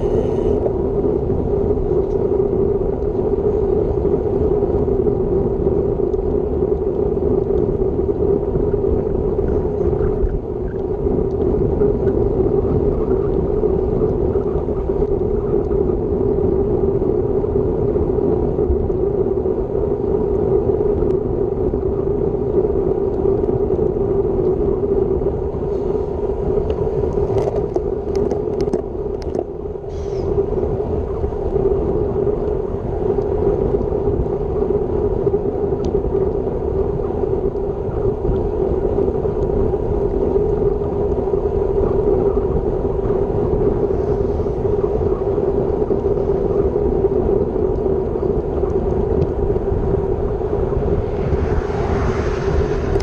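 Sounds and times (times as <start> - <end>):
low drone: 0.0 - 3.7, 43.7 - 53.0
wind and road rush: 0.0 - 53.0.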